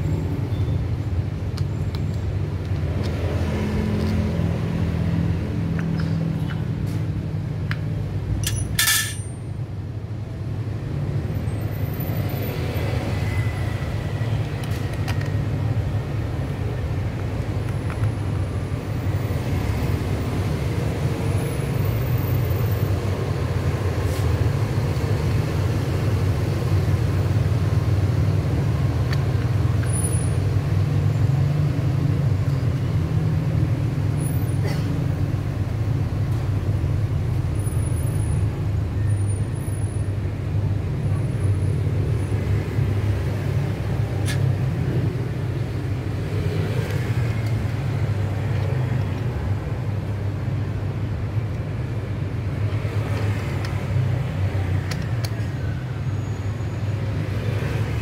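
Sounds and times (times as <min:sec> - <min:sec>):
sharp metallic click: 0:07.7 - 0:09.4.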